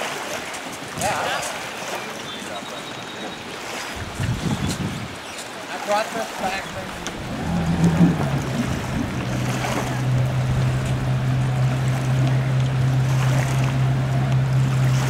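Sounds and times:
wind: 0.0s - 15.0s
water washing: 3.7s - 5.5s, 6.2s - 15.0s
boat engine idling: 4.0s - 5.2s, 6.3s - 15.0s.

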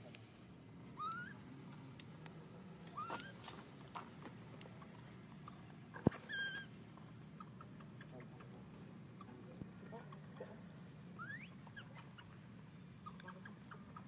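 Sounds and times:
baby monkey squeaking: 1.0s - 1.4s, 2.9s - 3.4s, 6.1s - 6.7s, 11.2s - 12.4s.

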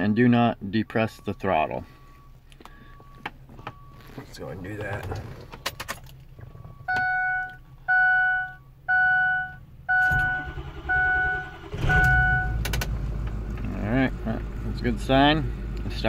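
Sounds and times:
dashboard warning chime beeping: 0.0s - 5.1s, 6.4s - 12.7s
diesel engine cranking and starting: 9.9s - 16.0s.

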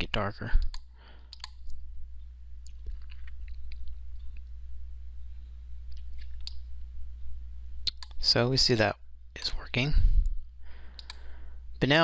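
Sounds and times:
steady low hum: 0.0s - 12.0s
computer mouse clicks: 0.6s - 1.8s, 10.9s - 11.2s.

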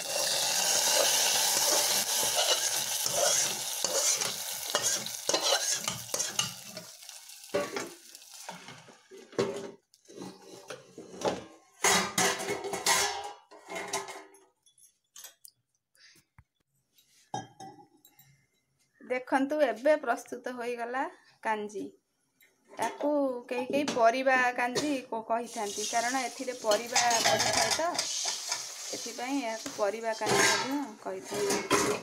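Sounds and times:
spatula scraping metal pot: 0.0s - 7.0s, 11.8s - 14.1s, 26.6s - 32.0s
hot oil sizzling loudly: 0.0s - 9.0s, 25.5s - 30.2s.

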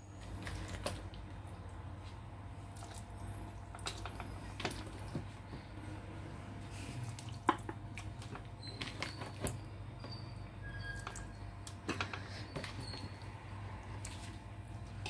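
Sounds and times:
low steady hum: 0.0s - 15.0s
brief high squeaks: 8.6s - 11.4s.

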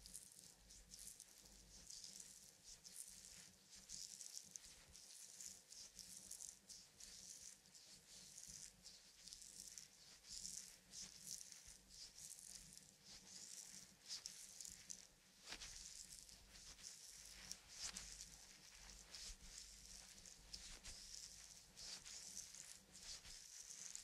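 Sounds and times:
skin rubbing on skin: 0.1s - 24.0s.

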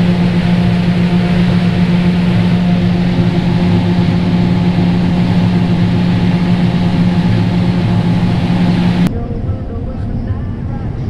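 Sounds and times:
combine harvester drone: 0.0s - 9.1s.

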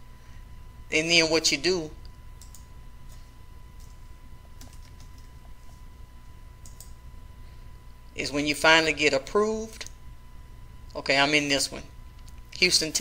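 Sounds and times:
faint electrical whine: 0.0s - 13.0s
quiet keyboard typing: 2.4s - 5.9s, 6.6s - 7.0s.

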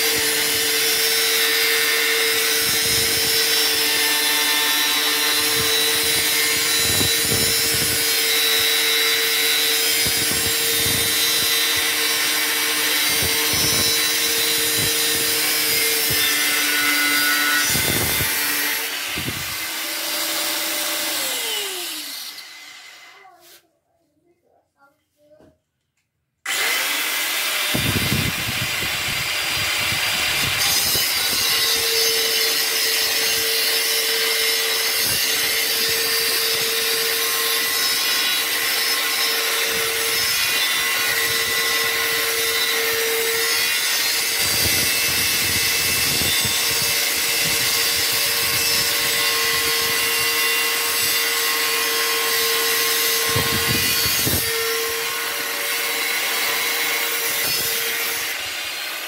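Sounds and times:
angle grinder cutting steel: 0.0s - 23.3s, 26.5s - 59.0s.

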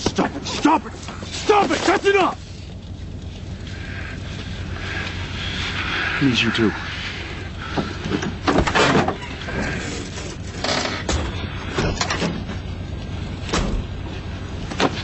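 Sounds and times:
low hum: 0.0s - 15.0s
car doors shutting: 7.7s - 12.7s, 13.4s - 14.0s.

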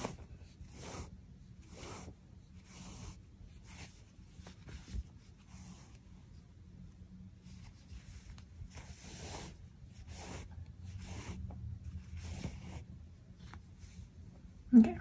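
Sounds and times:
yarn rasping through fabric: 0.0s - 4.0s.

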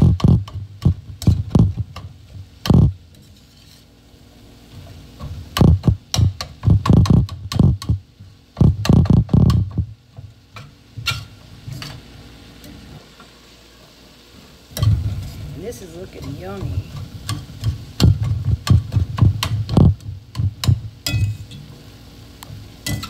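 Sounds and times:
spatula scraping skillet: 0.0s - 4.1s, 10.5s - 12.2s, 14.7s - 21.9s.

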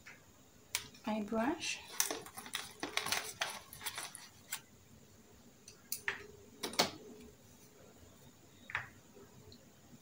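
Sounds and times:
makeup items clicking and rustling: 1.9s - 4.6s.

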